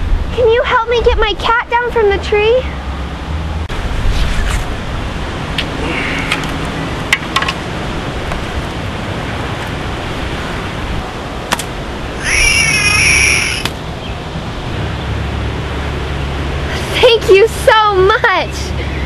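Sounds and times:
outdoor background noise: 0.0 - 19.0
cat yowling: 12.2 - 13.7.

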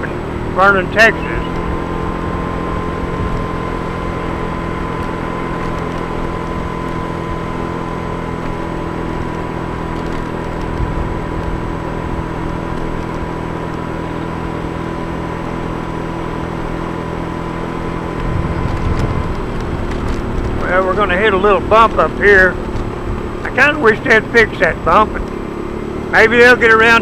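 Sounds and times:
motorcycle engine running: 0.0 - 27.0
road and wind noise: 0.0 - 27.0.

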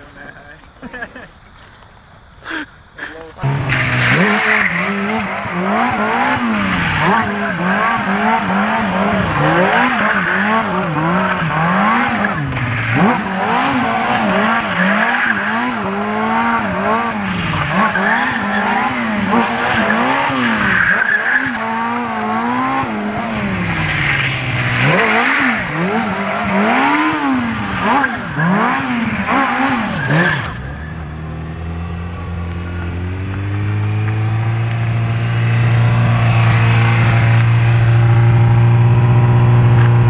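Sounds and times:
motorcycle engine revving: 3.3 - 40.0
tyre squeal: 17.6 - 22.1, 23.8 - 31.5.

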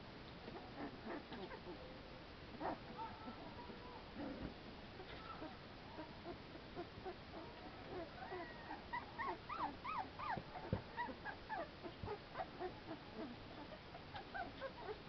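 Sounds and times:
puppies whimpering and yipping: 0.6 - 1.8, 5.0 - 15.0.

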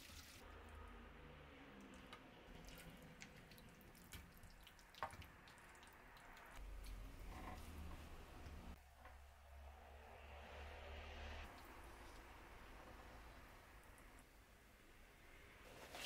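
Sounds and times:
small drips and clicks: 1.8 - 7.0.

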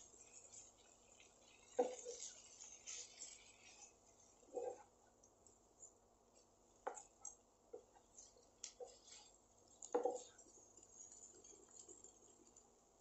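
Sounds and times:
spatula scraping and knocking pan: 0.0 - 4.9, 6.8 - 12.2
wooden spatula stirring in a pan: 0.0 - 13.0.

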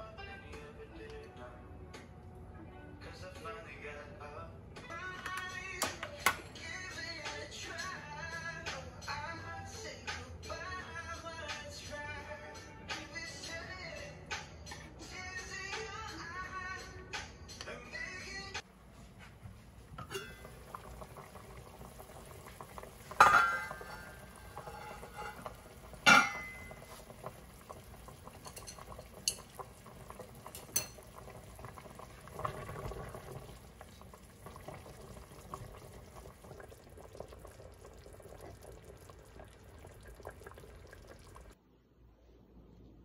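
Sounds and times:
pot of water bubbling: 19.5 - 41.6.

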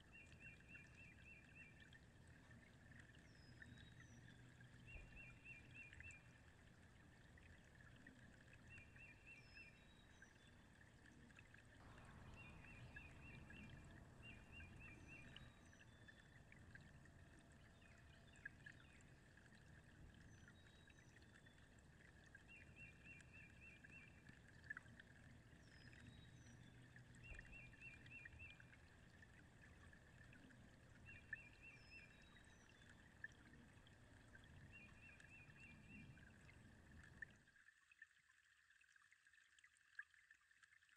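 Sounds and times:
water gently lapping: 0.0 - 40.9
trilled bird calls: 11.9 - 16.3.

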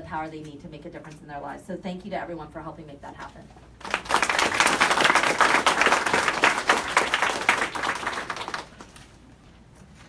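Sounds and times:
audience applauding: 3.8 - 9.0.

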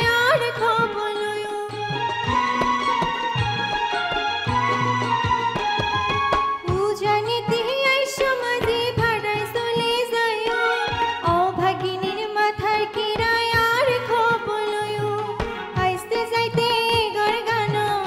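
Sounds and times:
woman singing: 0.0 - 3.1, 6.5 - 18.0
bamboo flute melody: 1.8 - 6.8
hand drum: 1.8 - 18.0.

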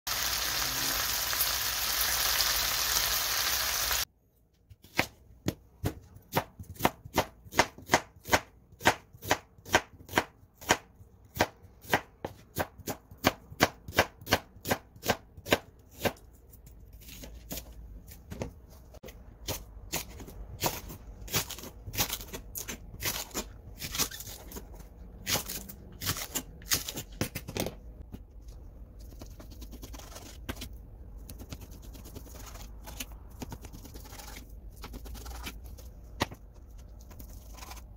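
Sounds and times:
meat sizzling in a pan: 0.1 - 4.1.

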